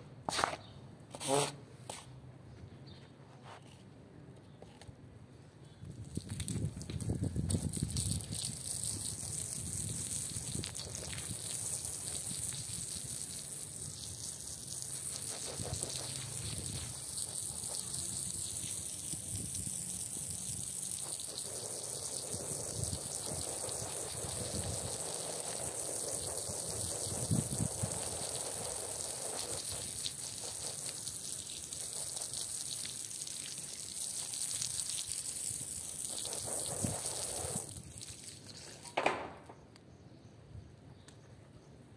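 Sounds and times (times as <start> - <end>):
water gushing over floor: 6.0 - 39.0.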